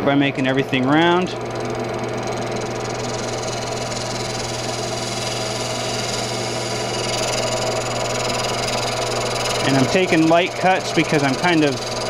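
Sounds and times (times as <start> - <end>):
gouge cutting spinning wood: 0.0 - 12.0
wood lathe humming: 0.0 - 12.0.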